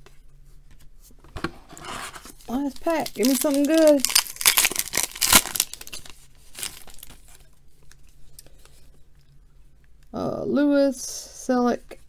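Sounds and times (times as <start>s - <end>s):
cards rustling: 1.8s - 8.0s
foil wrapper tearing and crinkling: 2.2s - 8.0s.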